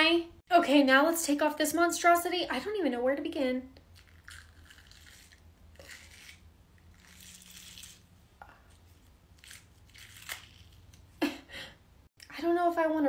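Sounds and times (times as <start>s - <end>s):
latex peeling off skin: 9.4s - 11.0s.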